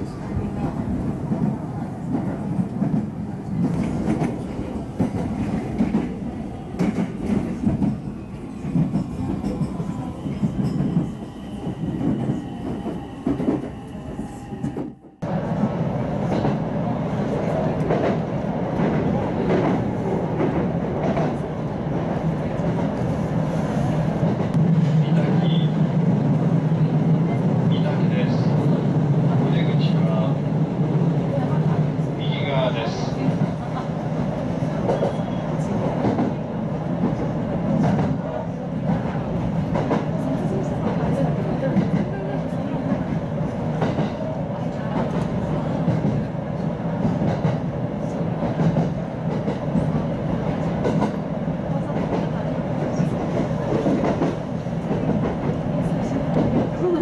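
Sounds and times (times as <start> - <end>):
train wheels on rails: 0.0 - 30.0, 32.9 - 57.0.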